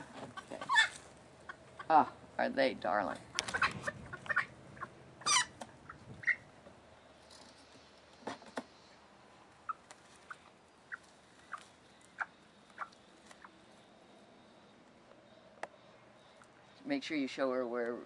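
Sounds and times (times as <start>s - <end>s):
hen squeaky calls: 0.6s - 1.0s, 3.4s - 6.5s.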